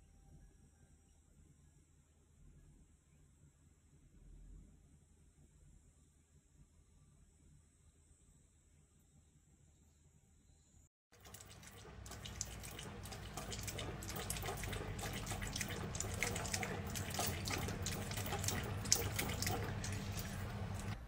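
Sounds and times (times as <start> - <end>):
low steady hum: 0.0 - 21.0
dog licking water bottle spout: 11.2 - 21.0.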